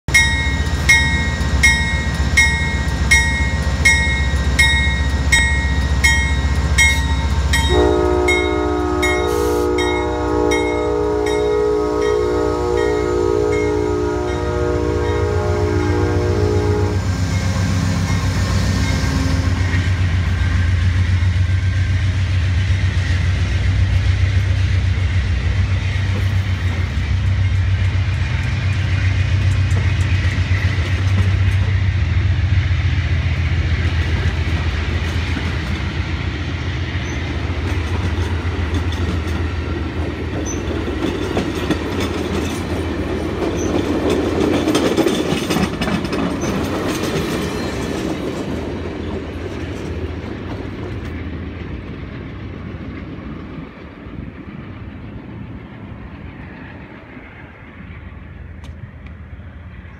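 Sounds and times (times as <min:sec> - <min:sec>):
diesel locomotive drone: 0:00.0 - 0:59.9
train wheels clicking over rail joints: 0:17.2 - 0:57.0.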